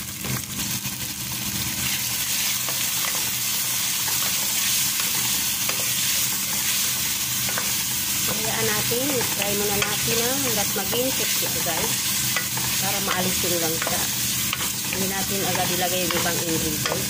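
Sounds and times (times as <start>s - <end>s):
chicken sizzling in hot oil: 0.0s - 17.0s
spatula scraping and tapping pot: 7.4s - 17.0s.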